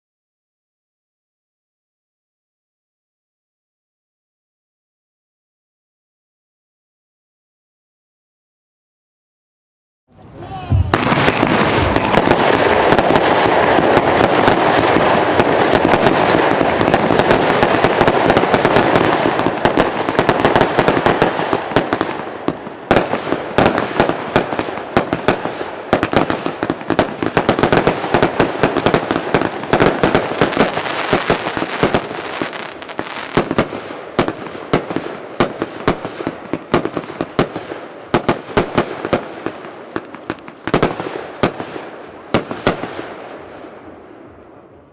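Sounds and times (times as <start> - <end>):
fireworks launching and bursting: 10.2 - 44.9
sharp firework pops: 10.7 - 22.1.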